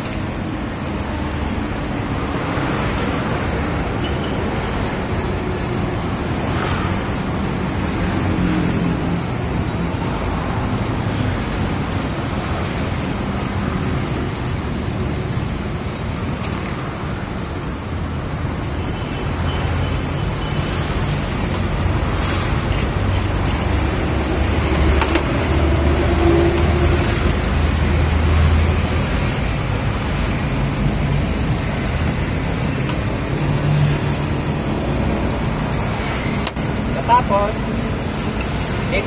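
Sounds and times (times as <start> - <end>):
sharp metallic clicks: 38.1 - 38.8.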